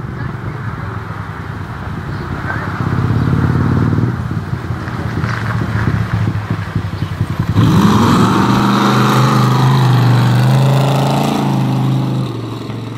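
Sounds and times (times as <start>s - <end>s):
car engine pulsing at low speed: 4.1s - 12.9s
pickup truck engine revving: 7.4s - 12.9s.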